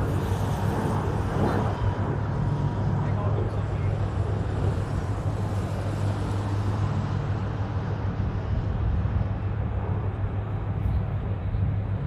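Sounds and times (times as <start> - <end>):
aircraft engines droning overhead: 0.0 - 12.0.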